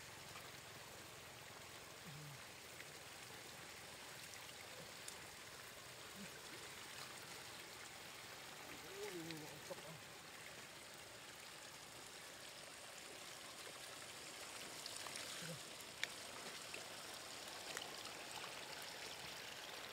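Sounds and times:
small water splashes: 0.0 - 19.9
water trickling over stones: 0.0 - 19.9.

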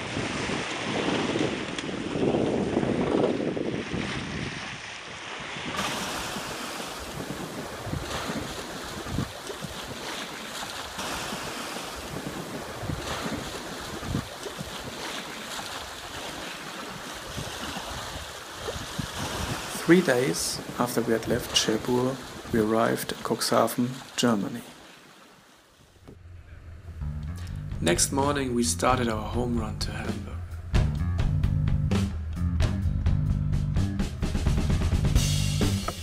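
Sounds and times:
wind buffeting microphone: 0.0 - 19.8
rushing water: 0.0 - 26.2.

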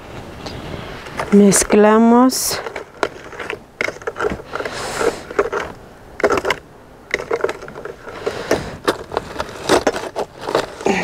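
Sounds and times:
wooden spoon scraping metal bowl: 2.4 - 11.0.

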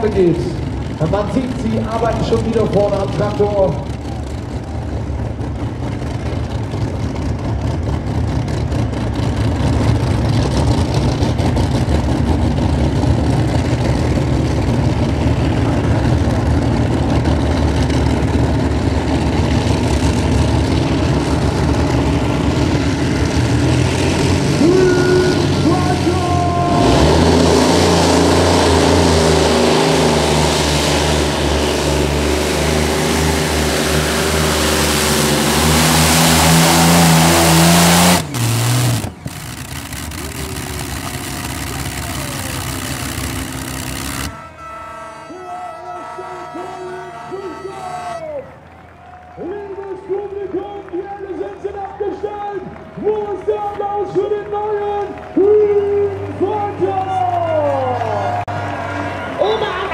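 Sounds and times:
aircraft engines deep rumble: 0.0 - 44.5.

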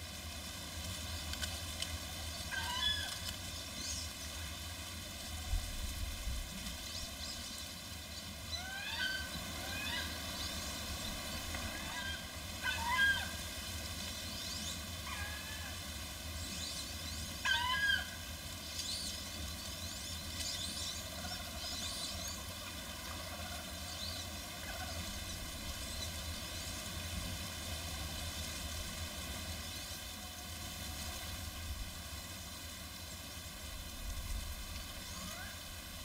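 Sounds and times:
duck rising squeal: 2.5 - 3.2, 8.6 - 10.2, 11.7 - 13.4, 17.4 - 18.2
ducks whistling calls: 2.5 - 3.3, 11.6 - 13.4, 17.4 - 18.2.

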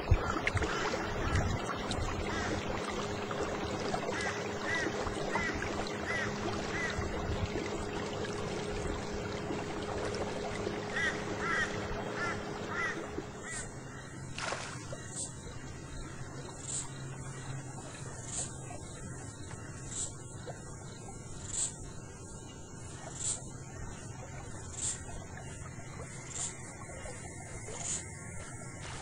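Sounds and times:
water noise: 0.0 - 29.0
bird calling: 10.6 - 14.3.

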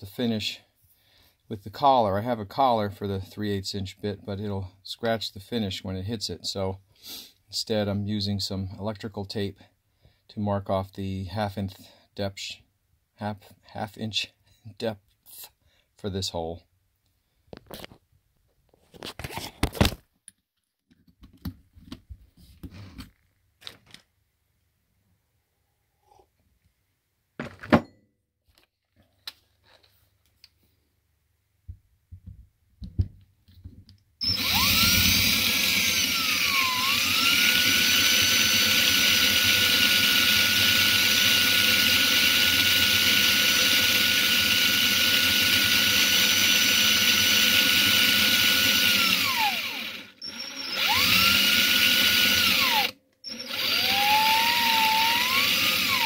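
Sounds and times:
power drill boring into wood: 34.2 - 56.0.

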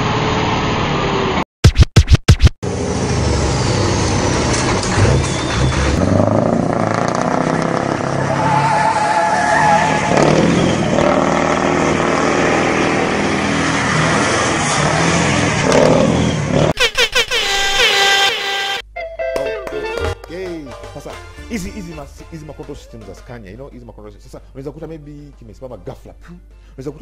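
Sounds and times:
diesel engine revving: 2.6 - 16.8
tyres squealing on pavement: 4.7 - 6.0, 8.1 - 11.2.

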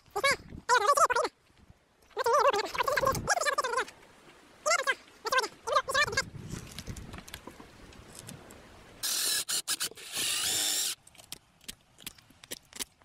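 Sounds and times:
small power drill whining: 9.0 - 11.0.

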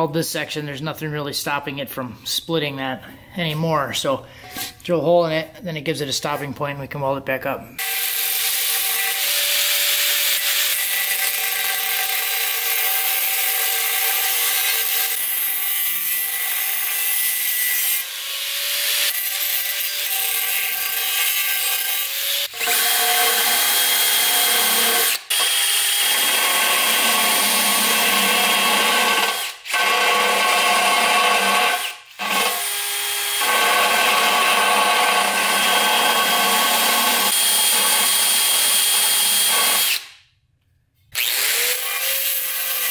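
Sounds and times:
cordless drill spinning: 16.1 - 40.2, 41.1 - 42.9
grinder whining on metal: 41.2 - 42.9.

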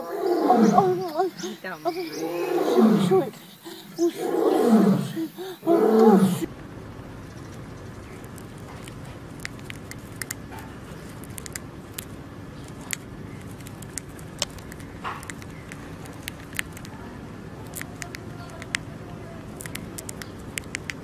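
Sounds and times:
steady low hum: 0.0 - 21.0
hamster chewing clicks: 8.1 - 21.0.

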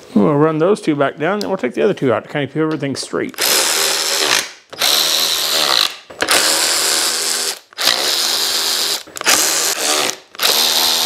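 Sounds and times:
power drill driving bolts: 3.4 - 11.0.

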